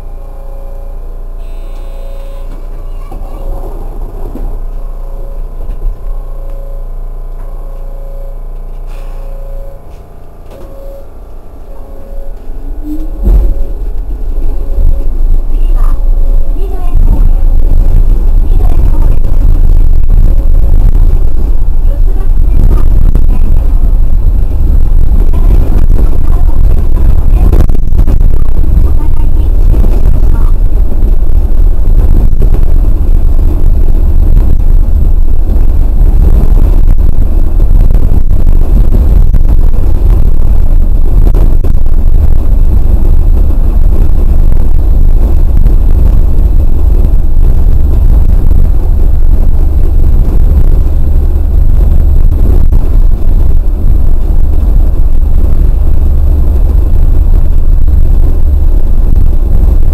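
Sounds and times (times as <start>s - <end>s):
train rumbling on track: 2.4s - 6.6s, 11.2s - 32.7s.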